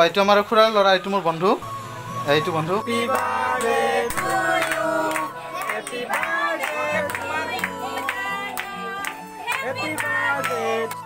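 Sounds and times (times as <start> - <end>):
music playing: 1.2 - 11.0
group of people singing: 1.6 - 11.0.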